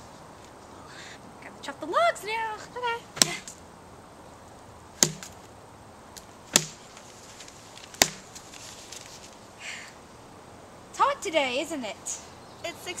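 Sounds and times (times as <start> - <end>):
axe chopping log: 3.2 - 3.5, 5.0 - 5.4, 6.5 - 6.8, 8.0 - 8.4.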